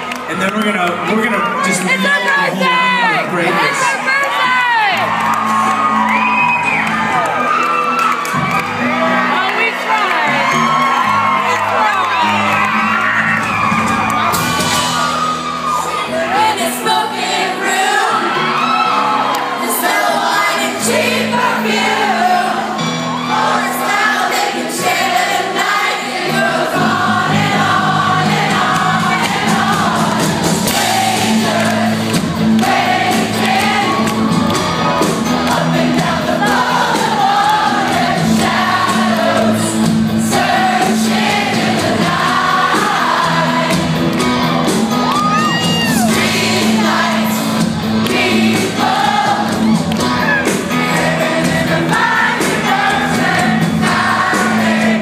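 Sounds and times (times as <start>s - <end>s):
live rock band playing: 0.0s - 55.0s
people singing together: 16.0s - 55.0s.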